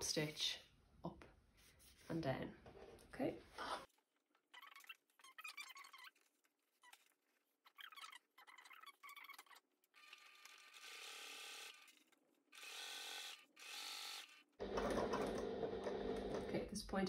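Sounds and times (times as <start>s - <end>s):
sewing machine stitching: 14.6s - 16.6s.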